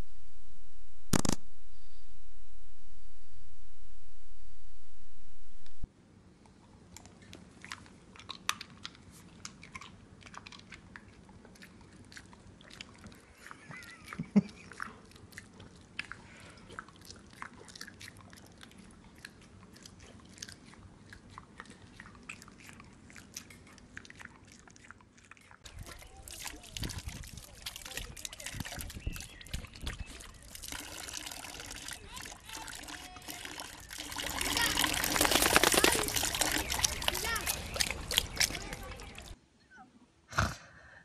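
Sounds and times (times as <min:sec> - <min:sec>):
dog smacking and chewing: 0:07.0 - 0:30.7, 0:34.4 - 0:39.4.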